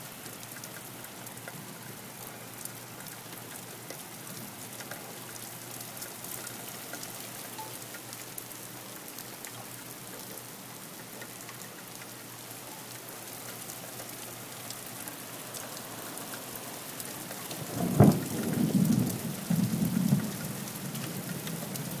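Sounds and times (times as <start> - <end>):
heavy rain on pavement: 0.0 - 22.0
thunderclap rumbling: 17.6 - 20.3.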